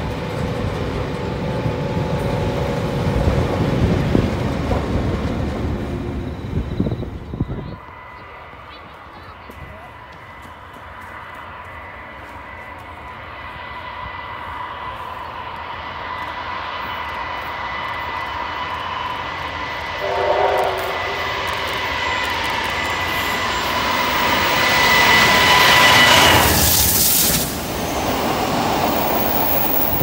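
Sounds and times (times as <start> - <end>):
diesel locomotive engine whine: 0.0 - 30.0
locomotive horn toot: 20.0 - 21.7.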